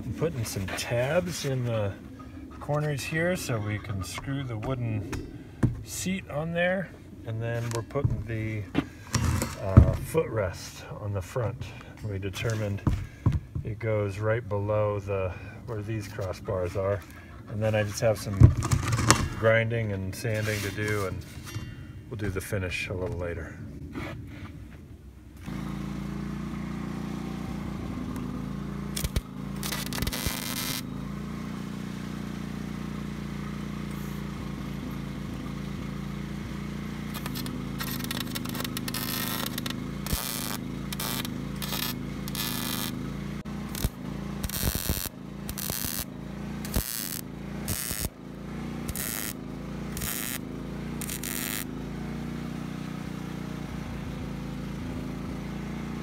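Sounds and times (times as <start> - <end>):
engine drone: 0.0 - 56.0
welding arc crackling: 28.2 - 30.9, 37.1 - 48.2, 48.8 - 51.8.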